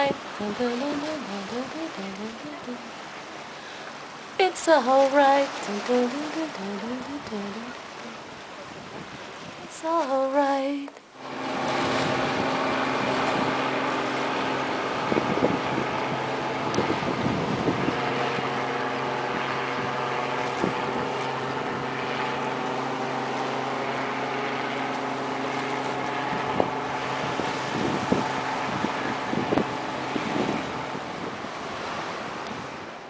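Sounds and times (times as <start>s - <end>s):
boat engine humming: 0.0s - 33.0s
wind noise on microphone: 8.3s - 9.7s, 11.3s - 22.4s, 26.0s - 33.0s.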